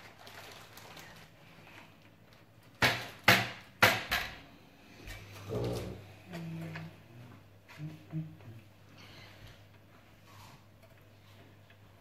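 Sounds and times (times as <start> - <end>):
sharp knocks of hard parts: 2.8 - 4.4.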